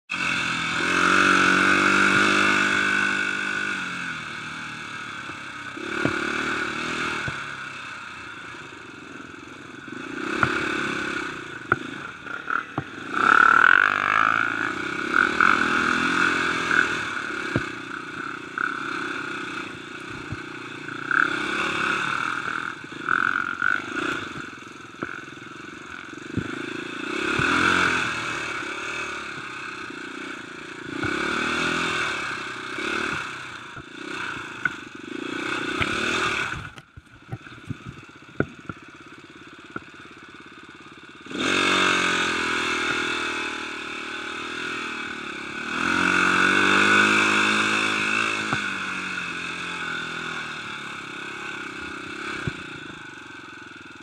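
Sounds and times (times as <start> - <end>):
dirt bike engine revving: 0.1 - 54.0.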